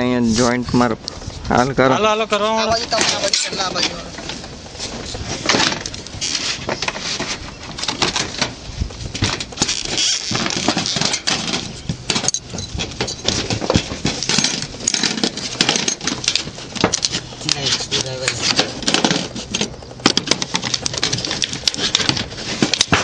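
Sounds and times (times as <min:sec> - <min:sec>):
metal roofing sheets clattering: 0:02.4 - 0:23.0.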